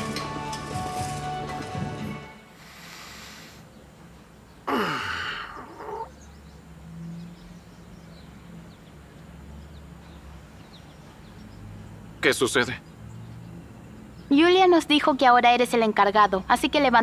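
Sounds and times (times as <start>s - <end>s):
man groaning sigh: 4.7s - 6.1s.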